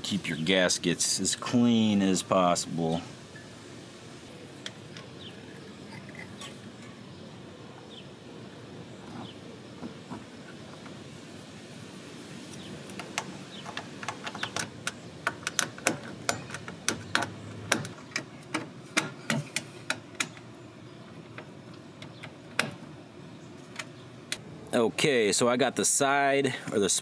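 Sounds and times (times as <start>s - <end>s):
steady low hum: 0.0s - 26.8s
hand tools clicking on bolts: 12.9s - 20.5s.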